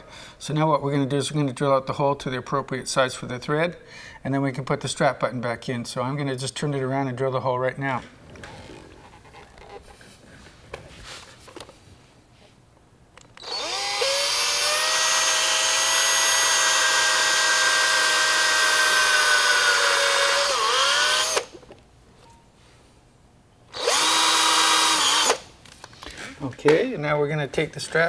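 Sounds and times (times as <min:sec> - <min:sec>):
cordless drill boring into wood: 0:13.4 - 0:21.6, 0:23.7 - 0:25.5.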